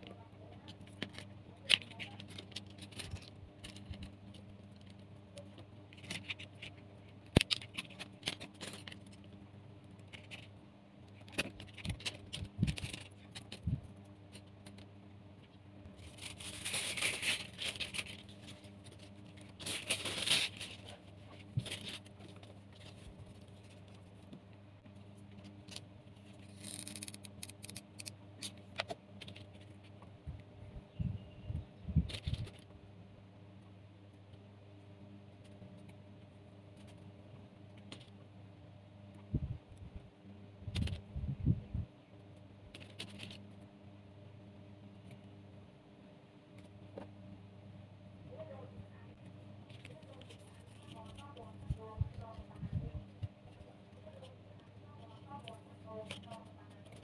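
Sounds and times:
faint low hum: 0.0 - 57.0
scraping rustles: 15.9 - 24.3.

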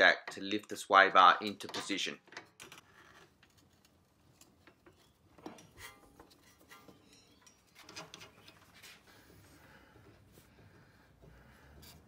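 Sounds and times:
faint metallic clinks: 3.8 - 8.3.

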